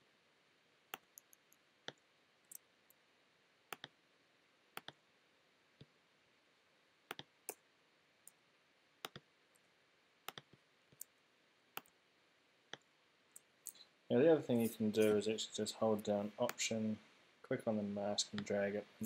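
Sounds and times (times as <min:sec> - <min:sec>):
computer mouse clicking: 0:03.7 - 0:04.0, 0:04.8 - 0:05.0, 0:07.1 - 0:07.6, 0:09.0 - 0:09.3, 0:10.3 - 0:11.1.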